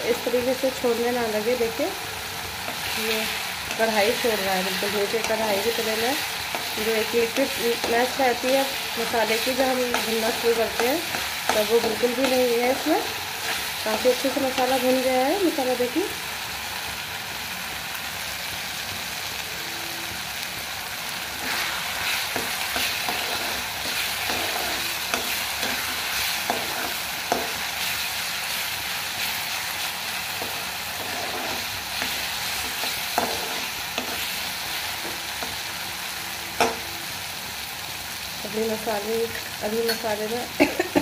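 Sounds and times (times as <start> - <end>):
food sizzling in oil: 0.0 - 41.0
metal spatula scraping pan: 21.4 - 27.7, 30.4 - 34.3.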